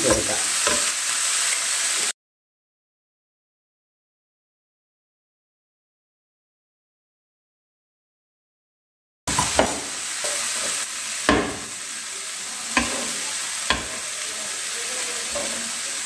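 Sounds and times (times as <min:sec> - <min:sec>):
food sizzling in a frying pan: 0:00.0 - 0:02.2, 0:09.3 - 0:16.0
spatula knocking against pan: 0:09.3 - 0:10.0, 0:11.3 - 0:11.8, 0:12.8 - 0:13.1, 0:13.7 - 0:14.0.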